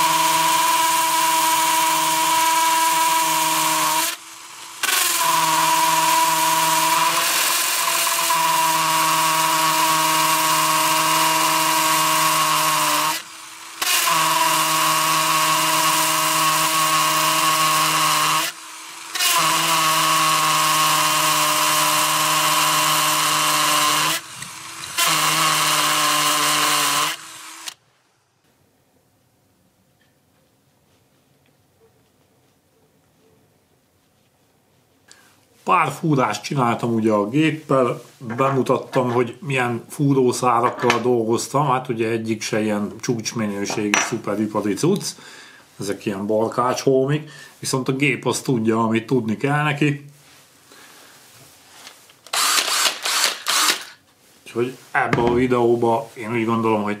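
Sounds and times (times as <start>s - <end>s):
cordless drill running: 0.0s - 27.8s, 52.2s - 54.0s.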